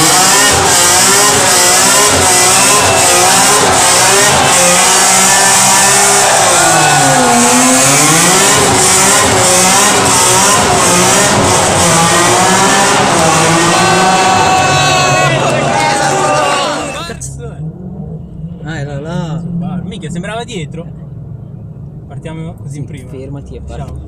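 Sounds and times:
car engine revving in tunnel: 0.0s - 20.1s.

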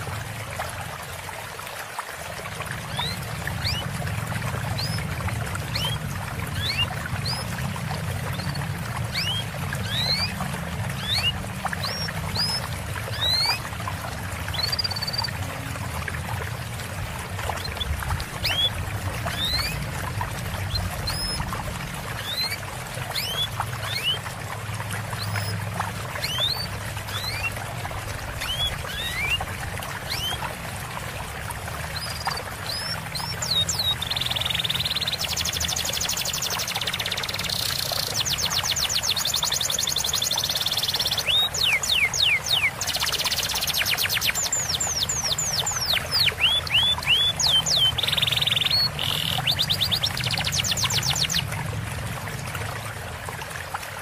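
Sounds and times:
trickling water: 0.0s - 54.0s
small songbirds chirping: 2.8s - 13.7s, 14.5s - 15.7s, 17.5s - 21.6s, 22.2s - 24.3s, 26.2s - 27.6s, 28.3s - 29.4s, 31.9s - 51.6s.

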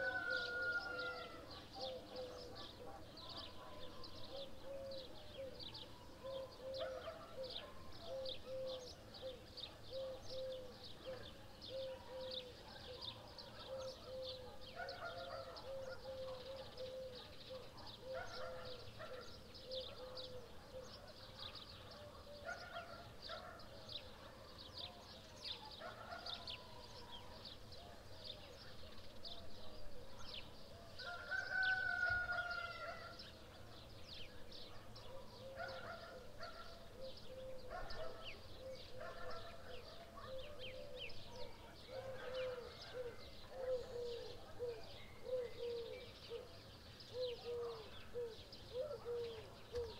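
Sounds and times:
rooster crowing: 0.0s - 1.4s, 31.0s - 33.1s
small birds chirping: 0.0s - 49.9s.

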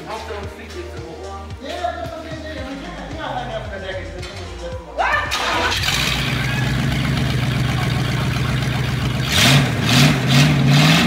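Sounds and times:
car engine idling: 5.3s - 11.0s
engine revving in short blips: 5.7s - 11.0s.

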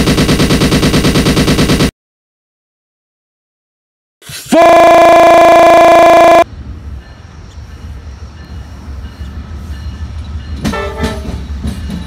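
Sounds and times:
locomotive horn blast: 4.5s - 6.4s, 10.7s - 11.3s
loud harsh steady tone: 4.5s - 6.5s
train passing with low rumble: 6.4s - 12.0s
train wheels knocking: 10.4s - 12.0s.

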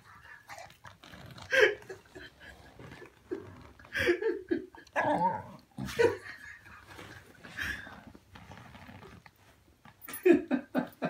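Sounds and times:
dog mouth and breathing noises: 0.0s - 2.1s.

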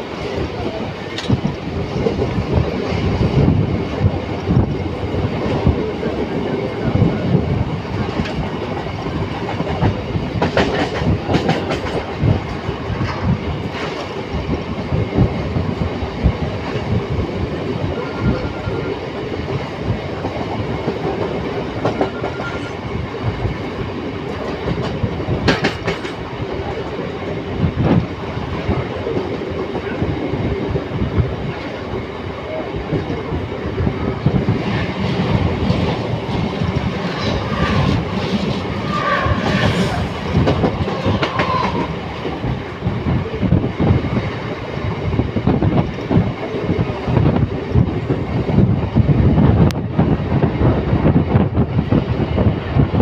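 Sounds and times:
train wheels rumbling on rails: 0.0s - 53.0s
clacks over rail joints: 0.4s - 3.1s, 8.0s - 14.2s, 20.2s - 22.8s, 24.2s - 30.0s, 34.4s - 42.5s.

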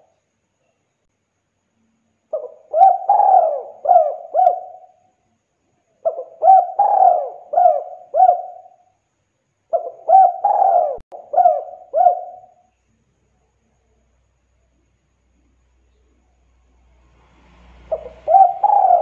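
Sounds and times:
dove cooing: 2.3s - 5.0s, 6.0s - 8.8s, 9.7s - 12.6s, 17.9s - 19.0s.

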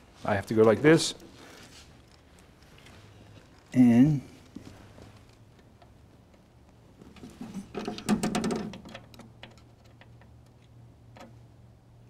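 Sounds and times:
light metallic clicking and rattling: 4.4s - 11.5s.

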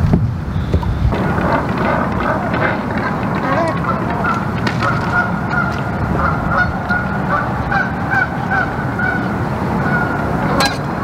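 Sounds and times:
low rushing noise: 0.0s - 11.0s
geese honking: 1.1s - 11.0s.

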